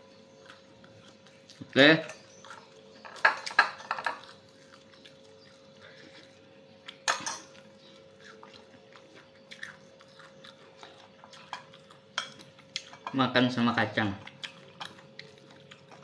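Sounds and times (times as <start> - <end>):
chewing and mouth sounds: 0.0 - 13.0, 14.2 - 16.0.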